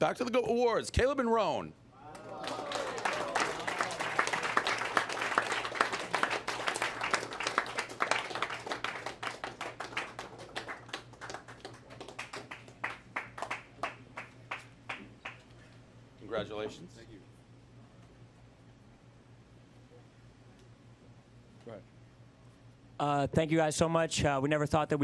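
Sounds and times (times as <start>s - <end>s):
audience applauding: 2.0s - 15.5s.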